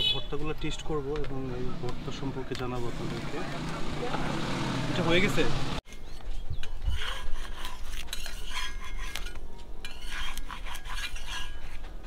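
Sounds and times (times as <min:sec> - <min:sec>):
metal spatula scraping griddle: 0:06.8 - 0:12.0.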